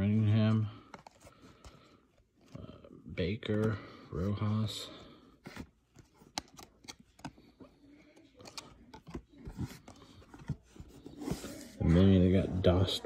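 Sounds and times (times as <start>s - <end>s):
cards clicking and rustling: 5.4s - 11.5s.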